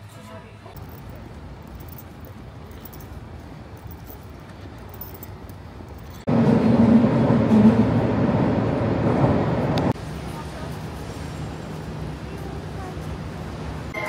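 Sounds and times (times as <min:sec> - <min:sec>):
low background noise: 0:00.0 - 0:06.3
loud vehicle humming: 0:00.8 - 0:14.0.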